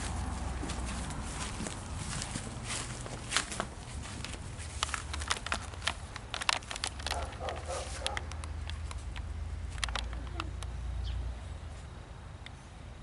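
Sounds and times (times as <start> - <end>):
footsteps through grass: 0.0 - 10.2
phone handling clicks and rustles: 3.4 - 10.7.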